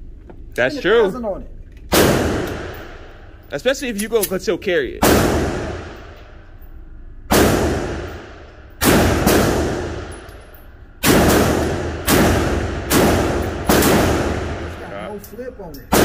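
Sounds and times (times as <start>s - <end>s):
pistol shots echoing indoors: 1.9s - 3.4s, 5.0s - 14.8s.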